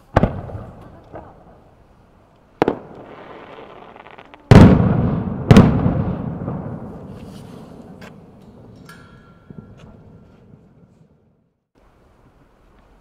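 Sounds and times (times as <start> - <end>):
firework shells bursting: 2.4 - 10.2
firework hiss: 2.6 - 4.7.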